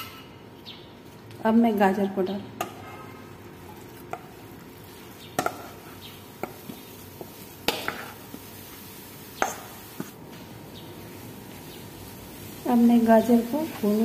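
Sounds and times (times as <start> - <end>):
wooden spatula scraping bowl and pan: 2.6 - 4.4, 5.4 - 8.5
spatula tapping pan: 5.3 - 8.5, 9.4 - 10.2.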